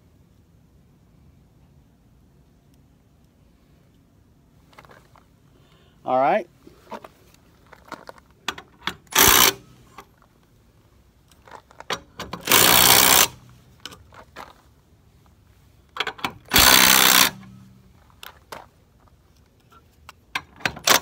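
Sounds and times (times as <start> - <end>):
impact driver hammering: 9.1 - 9.7, 12.4 - 13.4, 16.5 - 17.6.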